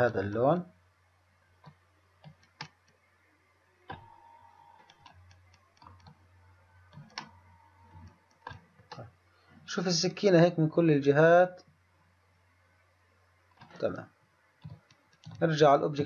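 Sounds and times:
low steady hum: 0.0s - 16.0s
computer mouse clicks: 1.6s - 3.0s, 3.9s - 6.2s, 6.9s - 9.1s, 14.6s - 15.4s.

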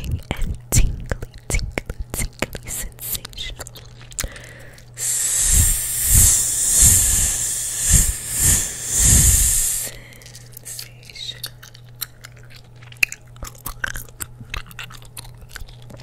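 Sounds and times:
breath puffs thudding on mic: 5.0s - 10.0s
mouth hissing into microphone: 5.0s - 10.0s.

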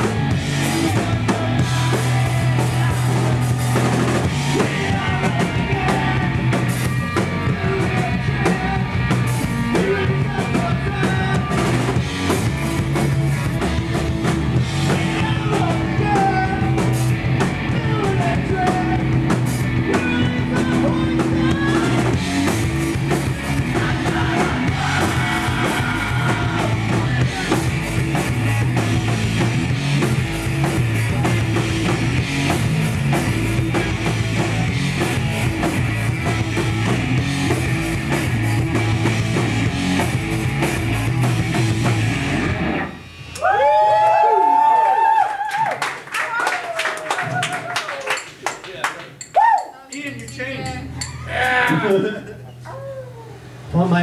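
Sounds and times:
live rock band playing: 0.0s - 43.4s
person singing: 0.7s - 9.0s, 9.7s - 11.8s, 14.9s - 16.9s, 19.9s - 22.2s, 23.6s - 27.8s.

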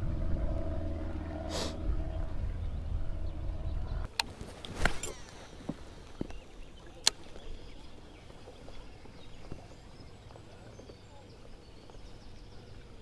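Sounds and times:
low rumble: 0.0s - 4.1s.

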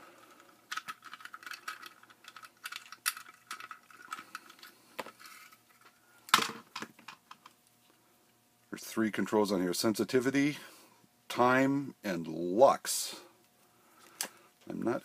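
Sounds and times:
plastic clicks and rattles: 0.4s - 5.6s.

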